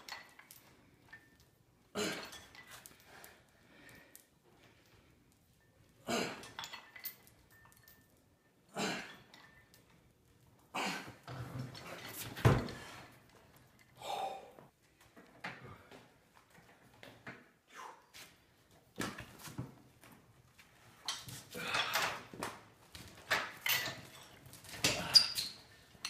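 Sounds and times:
heavy chain rattling: 23.3s - 26.0s.

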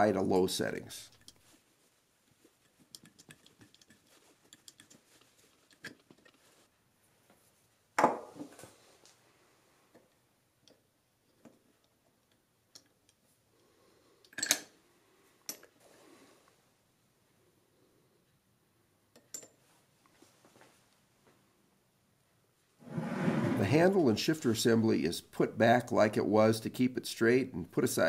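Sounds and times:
small metallic clicks and scrapes: 1.1s - 1.6s, 2.3s - 6.7s.

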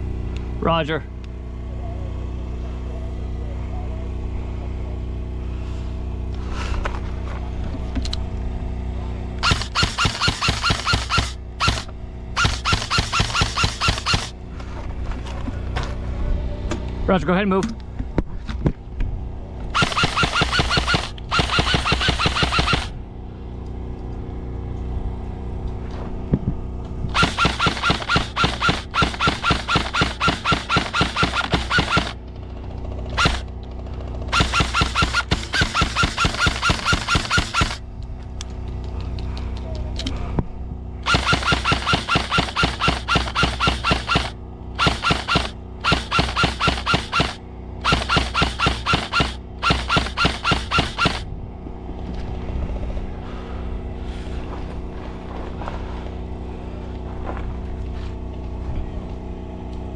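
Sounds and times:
airsoft guns firing bursts: 9.4s - 14.4s, 19.7s - 23.0s, 27.1s - 37.8s, 41.0s - 51.3s.

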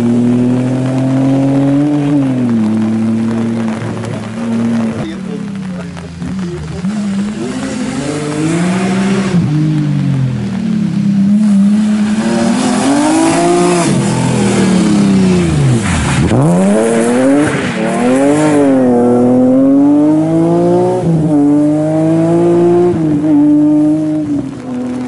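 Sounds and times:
rally car engine revving: 0.0s - 25.0s
tyres spraying mud and gravel: 0.1s - 21.5s.

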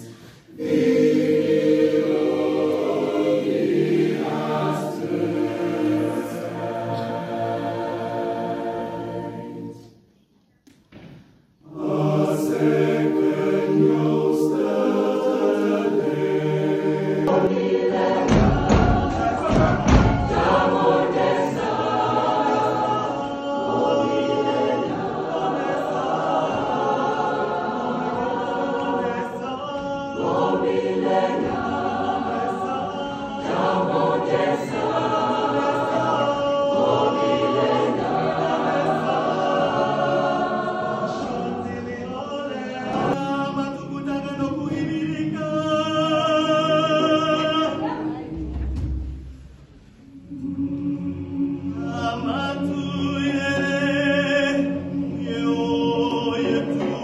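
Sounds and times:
choir singing in harmony: 0.0s - 10.2s, 11.4s - 57.0s.

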